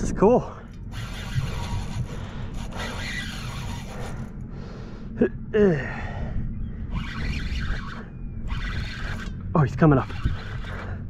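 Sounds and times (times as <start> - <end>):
wind and boat rumble: 0.0 - 11.0
person grunting breaths: 4.8 - 6.4.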